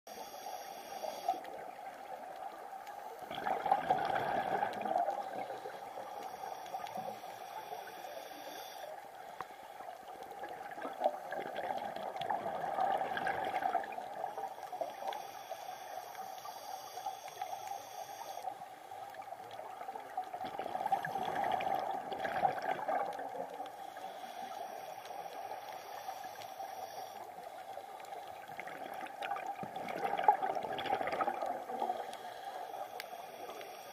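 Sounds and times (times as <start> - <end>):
underwater background: 0.1 - 33.9
diver's bubbles gurgling: 1.4 - 6.0, 10.1 - 14.9, 19.2 - 23.7, 28.2 - 32.2.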